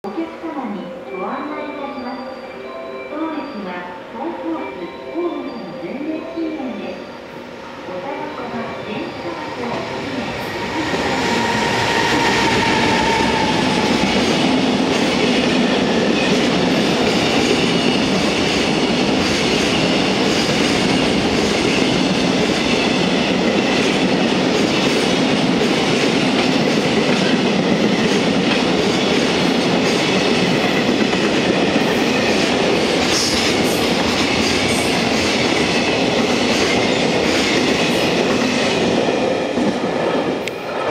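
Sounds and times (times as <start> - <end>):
locomotive whine: 4.8 - 18.2
freight train wheels on rails: 7.2 - 40.9.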